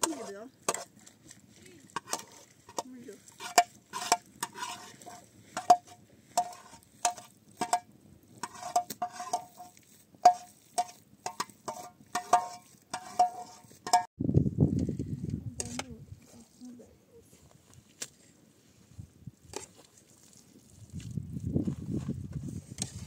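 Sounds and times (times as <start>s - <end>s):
utensil scraping a pot: 0.0s - 14.1s, 22.5s - 23.0s.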